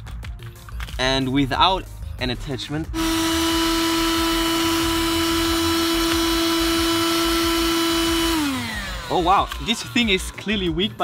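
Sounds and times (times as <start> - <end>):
handheld vacuum motor whine: 3.0 - 9.6.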